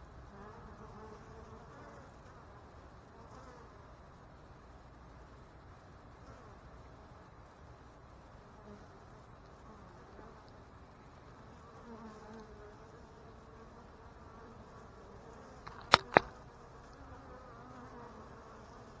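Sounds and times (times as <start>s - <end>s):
bees buzzing: 8.5s - 19.0s.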